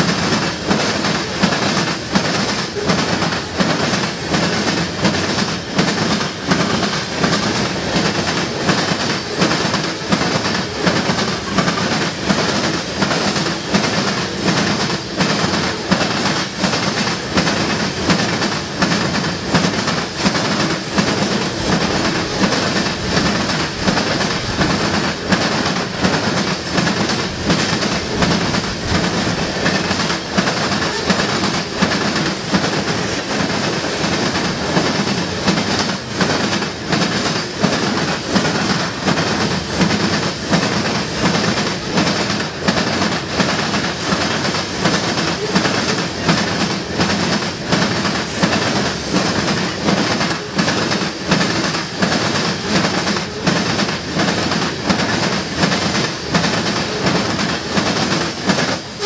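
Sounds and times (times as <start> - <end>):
train wheels clickety-clack: 0.0 - 59.0.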